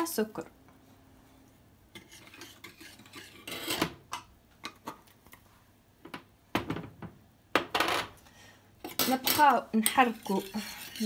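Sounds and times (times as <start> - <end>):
metal spoon scraping a saucepan: 1.9 - 4.0, 8.8 - 11.0.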